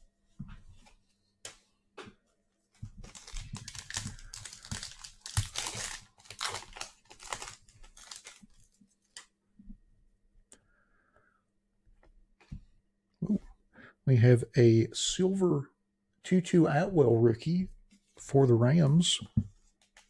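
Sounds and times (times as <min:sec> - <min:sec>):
plastic packaging crinkling and tearing: 0:03.0 - 0:09.3.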